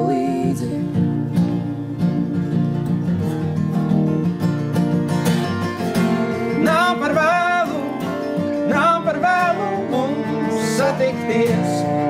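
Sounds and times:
person singing: 0:00.0 - 0:02.9, 0:06.4 - 0:12.0
acoustic guitars strumming: 0:00.0 - 0:12.0
bowed cello long notes: 0:06.0 - 0:12.0.

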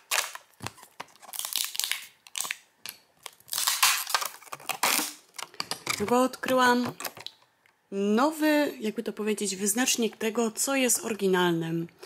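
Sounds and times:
plastic packaging crinkling: 0:00.0 - 0:06.1.

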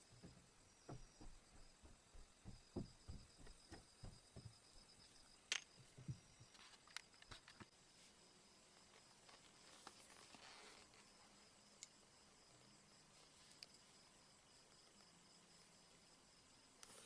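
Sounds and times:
soft low knocks: 0:00.0 - 0:05.0.

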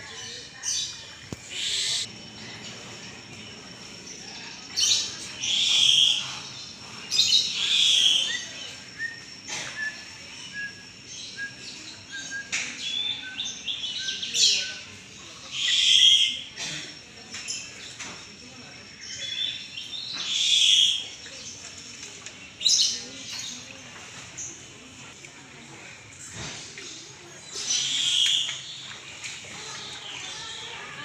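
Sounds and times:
birds making harsh calls: 0:00.2 - 0:03.2, 0:03.9 - 0:17.8, 0:18.9 - 0:21.6, 0:27.5 - 0:28.9.

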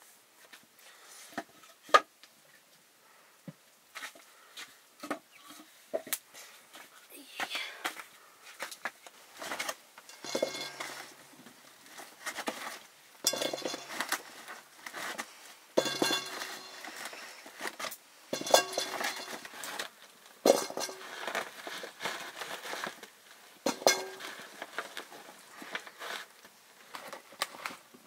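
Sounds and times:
metal cookware clinking: 0:10.1 - 0:11.1, 0:13.2 - 0:14.0, 0:15.8 - 0:16.9, 0:18.3 - 0:19.5, 0:20.4 - 0:21.1, 0:23.7 - 0:24.4.

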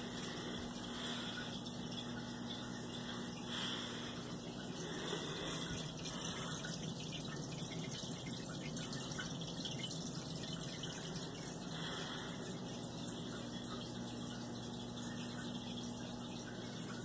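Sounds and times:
low pump hum: 0:00.0 - 0:17.0
water trickling and splashing: 0:00.0 - 0:17.0.

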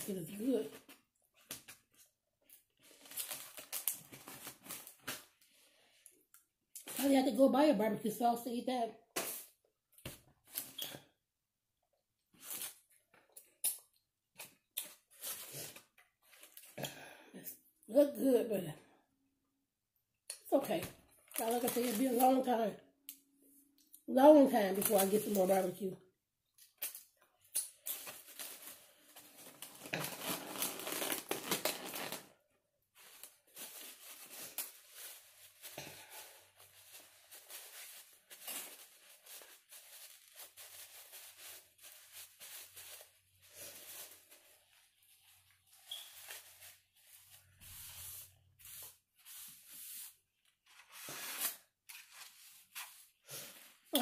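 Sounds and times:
food packaging rustling and tearing: 0:00.7 - 0:05.4, 0:21.2 - 0:22.5, 0:27.7 - 0:32.3, 0:33.0 - 0:49.6.

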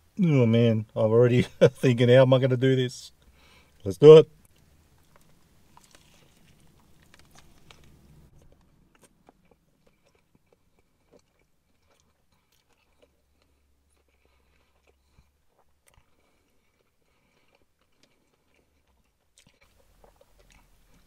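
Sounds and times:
chewing with mouth clicks: 0:04.4 - 0:21.0.

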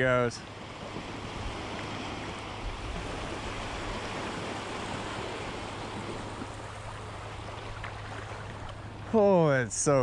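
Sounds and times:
small waves breaking on sand: 0:00.0 - 0:10.0.

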